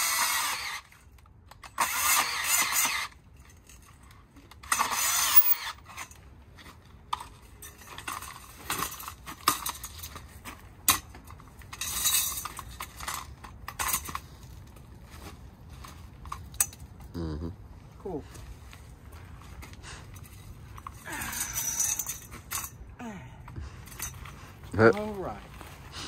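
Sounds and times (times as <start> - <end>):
bandsaw cutting metal tubing: 0.0 - 0.9, 1.8 - 3.1, 4.6 - 5.8
metal clinks and knocks: 5.3 - 6.2, 7.1 - 14.7, 20.1 - 22.9, 23.7 - 24.4.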